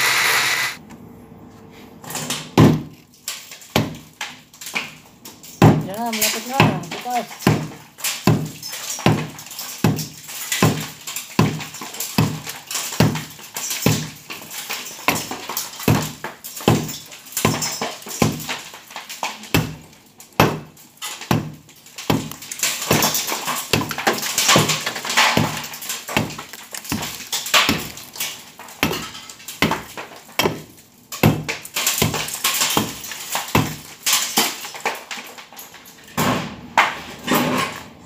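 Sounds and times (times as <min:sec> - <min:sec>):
hammer and chisel on concrete: 0:05.6 - 0:34.6.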